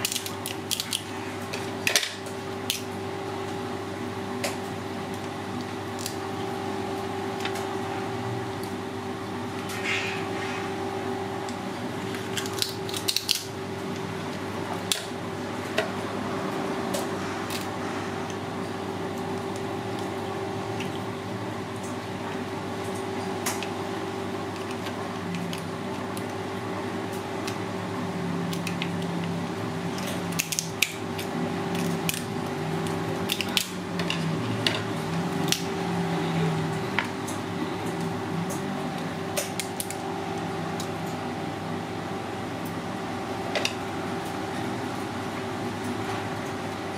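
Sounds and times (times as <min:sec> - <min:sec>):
crab shell cracking: 0:00.0 - 0:01.1, 0:12.2 - 0:13.5
steady background hum: 0:00.0 - 0:46.9.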